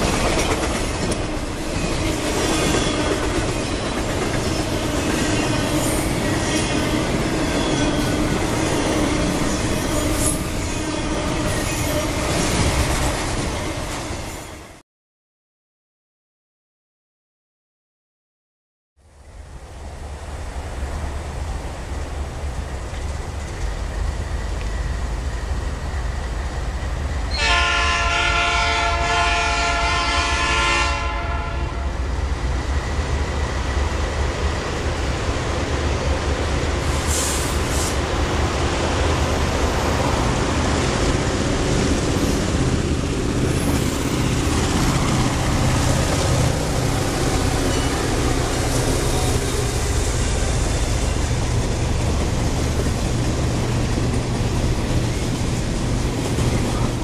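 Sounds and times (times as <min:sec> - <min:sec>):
freight train cars rumbling on rails: 0:00.0 - 0:14.8, 0:19.2 - 0:57.0
locomotive horn: 0:27.3 - 0:32.0.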